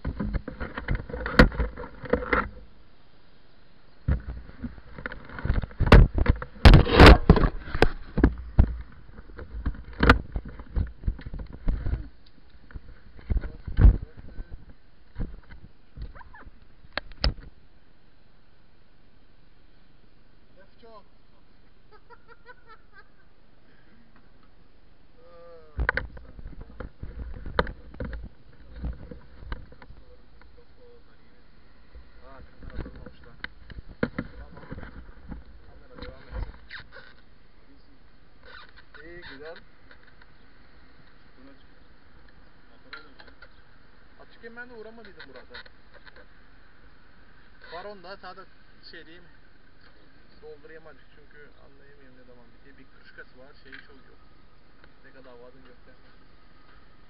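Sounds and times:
camera handling knocks and rubbing: 0:00.0 - 0:02.6, 0:04.1 - 0:12.0, 0:25.8 - 0:30.0, 0:32.6 - 0:37.1.

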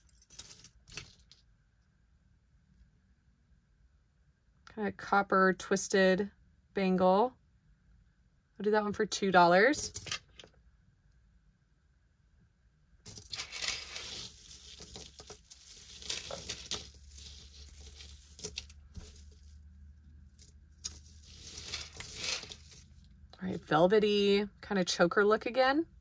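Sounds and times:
jewelry rustling and clinking: 0:00.0 - 0:01.4, 0:13.0 - 0:23.1.

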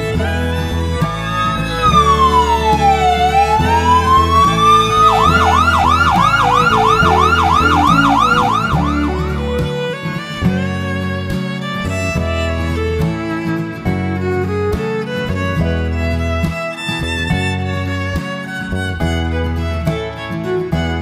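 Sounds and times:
background music: 0:00.0 - 0:21.0
emergency vehicle siren: 0:01.2 - 0:09.7.

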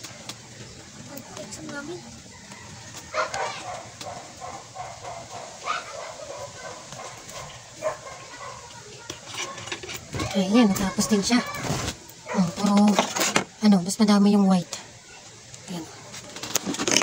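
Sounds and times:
dog barking: 0:03.1 - 0:08.8, 0:12.2 - 0:12.6.

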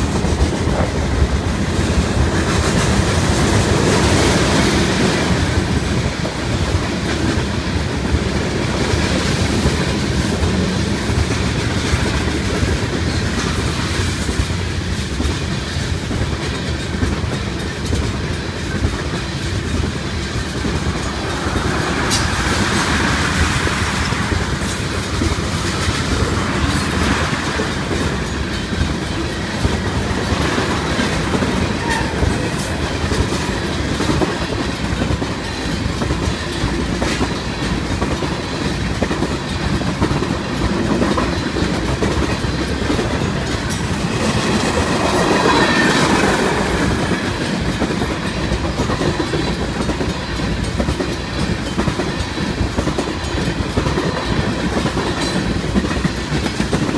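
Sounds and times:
train wheels rumbling on rails: 0:00.0 - 0:56.9
wheels clacking over rail joints: 0:00.0 - 0:56.9.

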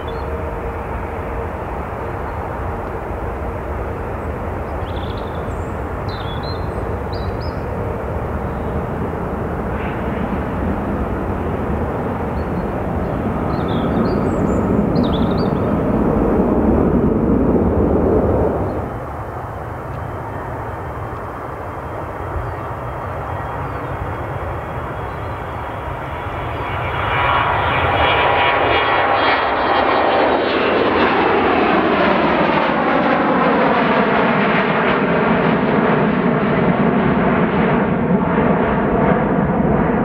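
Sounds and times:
jet airliner engines rumbling: 0:00.0 - 0:40.0
small birds chirping: 0:04.7 - 0:07.7, 0:12.3 - 0:15.7.

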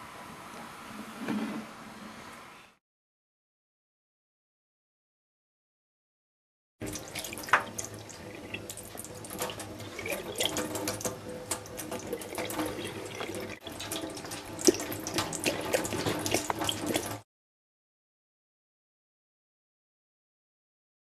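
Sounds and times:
cat drinking and splashing: 0:06.8 - 0:17.2
tap water running into sink: 0:06.8 - 0:17.2.

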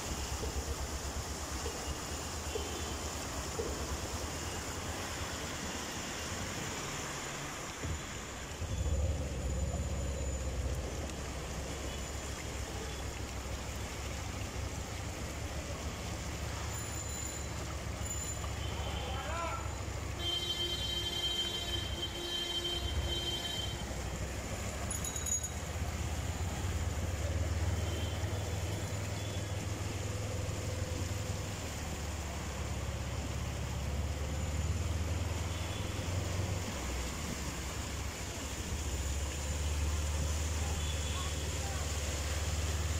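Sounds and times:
vehicle engine droning: 0:00.0 - 0:20.2, 0:22.9 - 0:42.9
floodwater sloshing and rushing: 0:00.0 - 0:42.9
constant low rumble: 0:07.9 - 0:16.5.

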